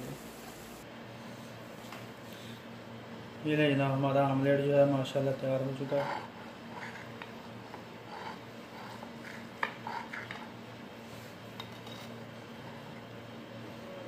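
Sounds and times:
steady low hum: 0.0 - 14.0
knife scraping ceramic plate: 11.6 - 12.2.

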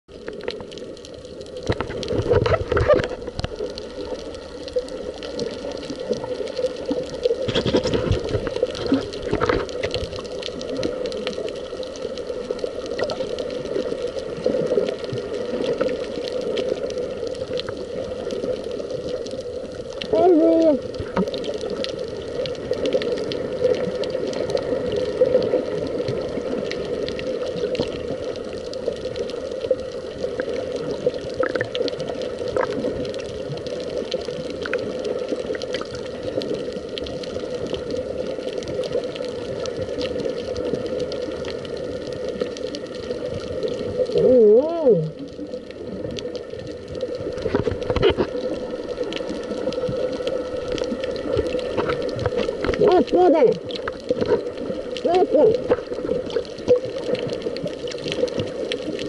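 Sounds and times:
crackling clicks: 0.1 - 44.2, 45.1 - 59.0
muffled underwater hum: 0.1 - 59.0.

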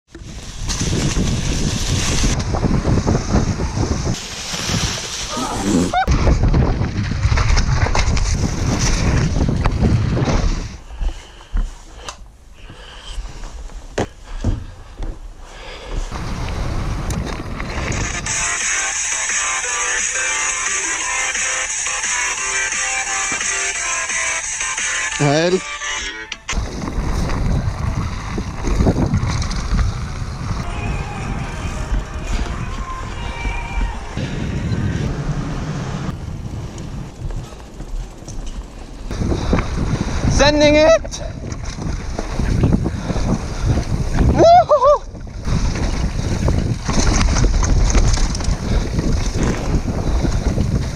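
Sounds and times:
bike frame and drivetrain rattle: 0.1 - 10.8, 26.6 - 44.4, 45.0 - 50.9
wind on microphone: 0.1 - 11.1, 26.5 - 50.9
bike tyre roar: 0.1 - 11.2, 15.6 - 19.0, 26.6 - 50.9.

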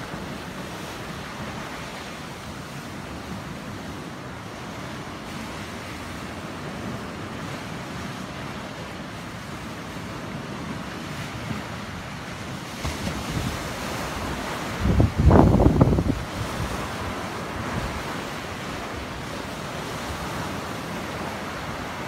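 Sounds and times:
waves breaking on rocky shore: 0.0 - 22.0
wind: 0.0 - 22.0
wind gusts hitting microphone: 12.9 - 22.0.

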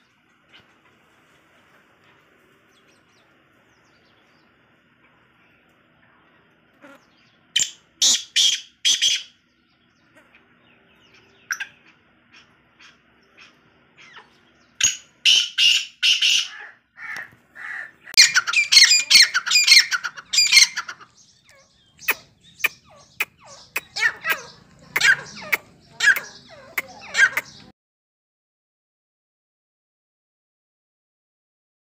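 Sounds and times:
francolins calling: 6.6 - 27.7.

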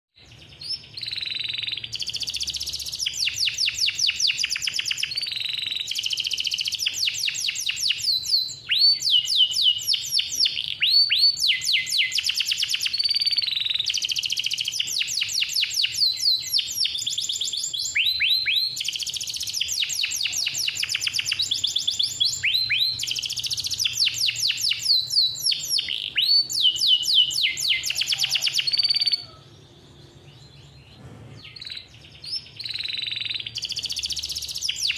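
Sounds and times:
canary singing trills: 0.2 - 34.9.

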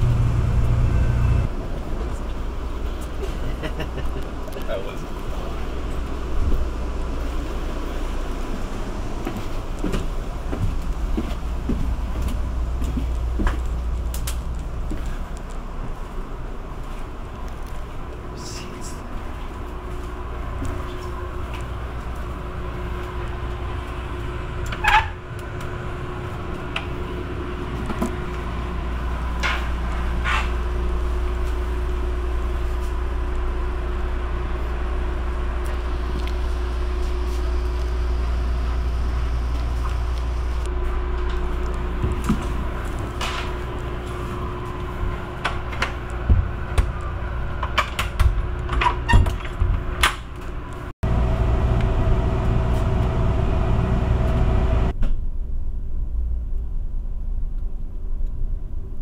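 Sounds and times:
train interior rumble: 0.0 - 59.0.

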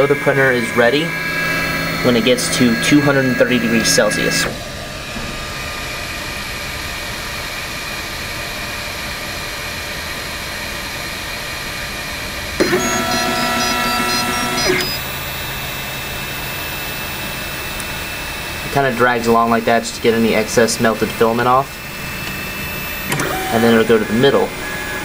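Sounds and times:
stepper motors whining: 0.0 - 5.5, 12.6 - 25.0
fan hum: 0.0 - 25.0.

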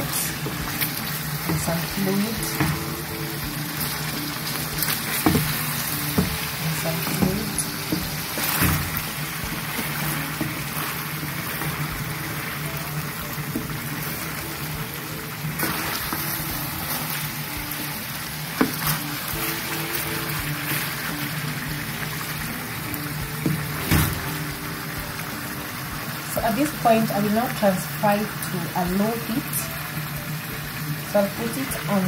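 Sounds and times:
chicken frying in hot oil: 0.0 - 32.0
soft background music: 0.0 - 32.0
wooden spoon knocking on pan: 5.1 - 10.8.

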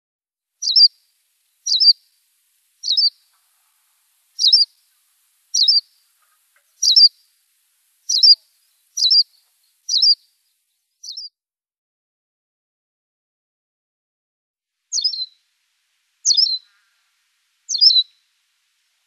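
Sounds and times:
bird calling sharp high chirps: 0.6 - 1.0, 1.6 - 2.1, 2.8 - 3.4, 4.3 - 7.3, 8.0 - 10.3, 11.0 - 11.3, 14.9 - 15.4, 16.2 - 17.1, 17.7 - 18.3.

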